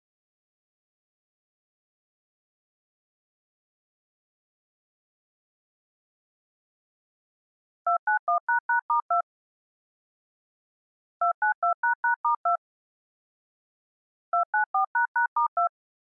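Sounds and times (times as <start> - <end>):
touch-tone beeps: 7.9 - 9.2, 11.2 - 12.6, 14.4 - 15.7.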